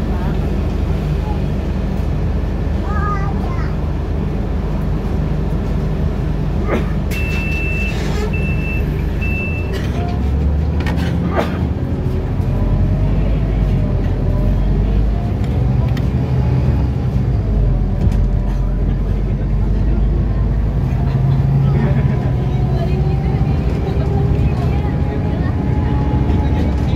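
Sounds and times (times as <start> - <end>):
bus engine and road rumble: 0.0 - 26.9
short high beeps: 7.1 - 9.7.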